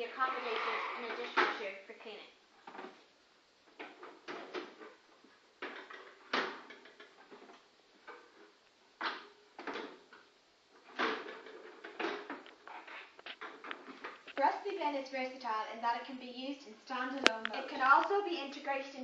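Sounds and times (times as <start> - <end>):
plastic bin parts clunking: 3.7 - 14.4.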